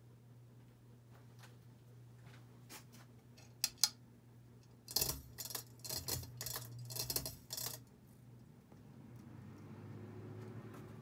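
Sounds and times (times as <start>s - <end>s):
ceiling fan motor hum: 0.0s - 11.0s
irregular clicks and ticks: 4.6s - 9.7s.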